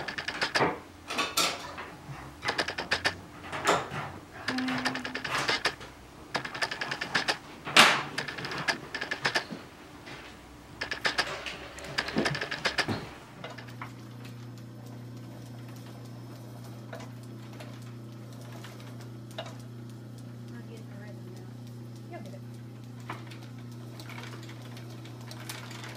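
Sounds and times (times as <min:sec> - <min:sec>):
sewing machine motor hum: 0:00.0 - 0:00.8, 0:02.4 - 0:07.4, 0:08.0 - 0:25.9
sewing machine rattling clicks: 0:00.0 - 0:00.8, 0:02.4 - 0:13.9, 0:22.9 - 0:25.9.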